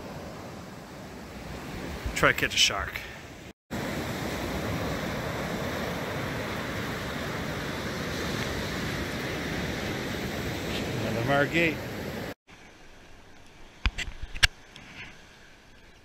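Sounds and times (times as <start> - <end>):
surf breaking on beach: 3.7 - 12.4.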